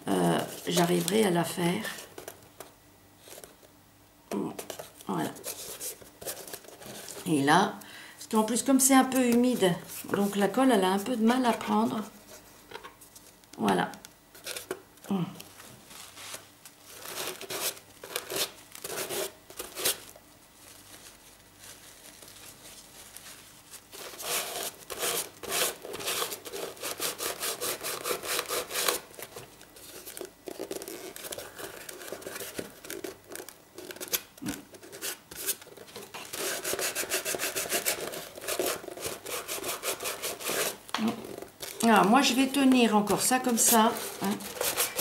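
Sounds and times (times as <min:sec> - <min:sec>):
hands rubbing paper on cardboard: 0:20.8 - 0:29.0, 0:34.8 - 0:40.8, 0:43.1 - 0:45.0.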